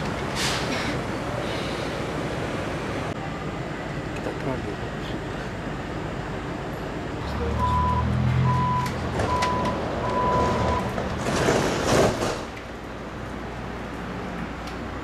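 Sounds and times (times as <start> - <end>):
door warning beeps: 7.6 - 10.9
sliding doors shutting: 8.4 - 12.7.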